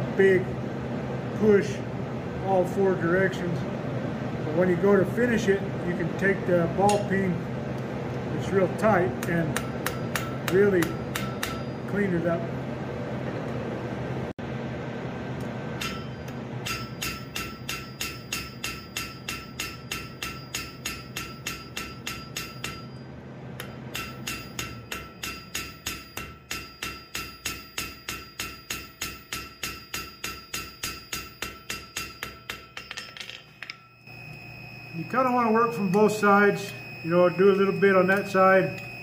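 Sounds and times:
hammer striking hot steel on anvil: 6.8s - 7.1s, 9.1s - 12.1s, 15.8s - 23.0s, 23.6s - 34.2s
anvil ringing: 9.2s - 12.1s, 15.8s - 34.2s.

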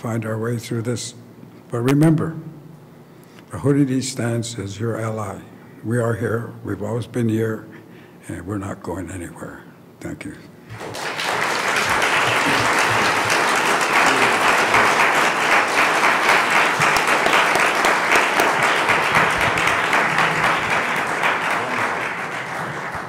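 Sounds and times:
audience applauding: 10.7s - 23.0s.

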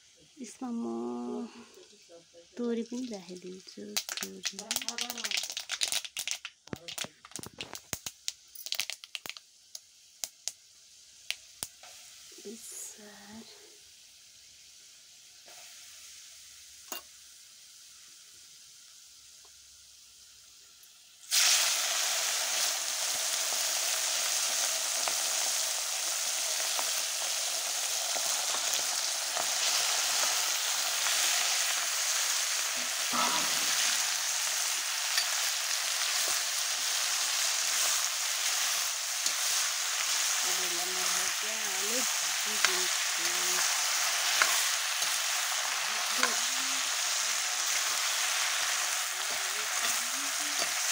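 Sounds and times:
meat sizzling in oil: 0.0s - 50.9s
spices crackling in hot oil: 0.0s - 50.9s.

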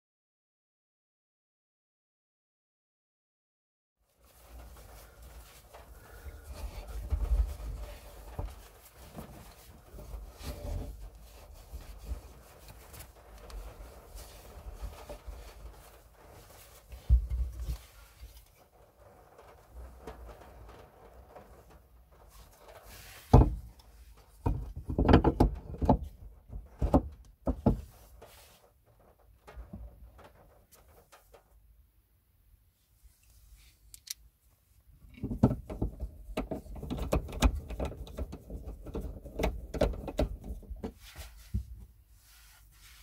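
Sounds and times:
cloth rubbing on metal: 4.1s - 24.7s, 27.7s - 31.5s, 32.8s - 33.9s, 35.6s - 43.0s.

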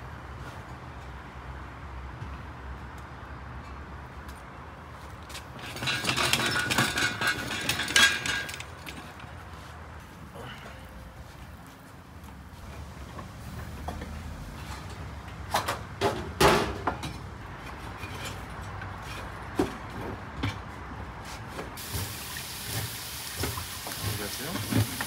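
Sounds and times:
metal poker clanking in clay oven: 5.6s - 9.0s.

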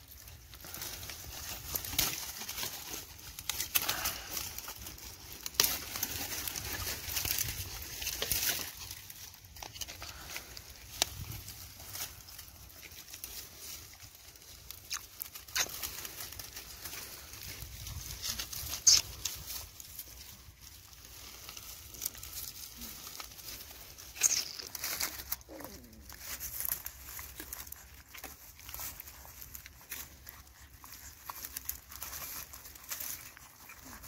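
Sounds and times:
rustling in dry leaves: 0.0s - 34.0s
puppies eating from metal bowl: 24.8s - 34.0s.

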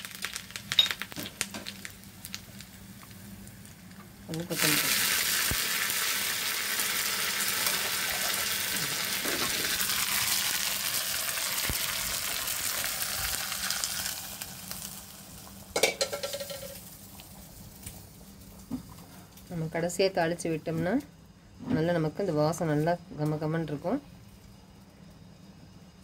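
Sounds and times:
food sizzling in hot oil: 0.0s - 18.6s.

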